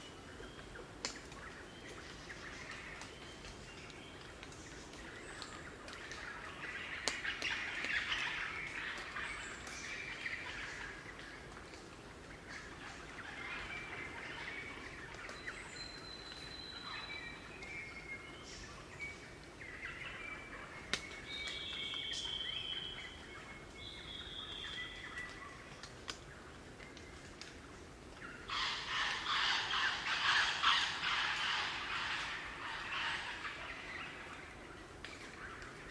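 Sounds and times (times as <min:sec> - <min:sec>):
whistled bird song: 0:15.4 - 0:19.2, 0:21.1 - 0:25.5.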